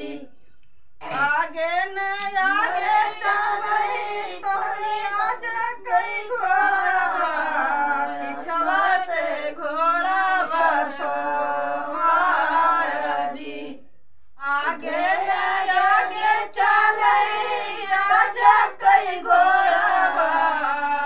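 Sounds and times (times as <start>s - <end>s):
women singing folk song unaccompanied: 0.0s - 0.3s, 1.0s - 21.0s.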